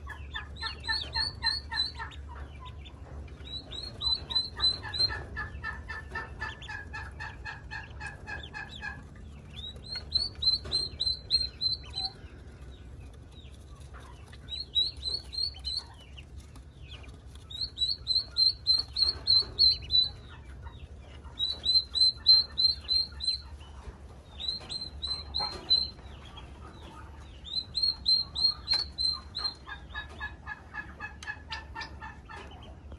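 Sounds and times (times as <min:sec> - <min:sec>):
ducklings peeping: 0:00.0 - 0:32.9
lower-pitched chirping: 0:00.1 - 0:02.8, 0:03.4 - 0:07.1, 0:09.5 - 0:12.3, 0:14.2 - 0:16.1, 0:16.9 - 0:30.3.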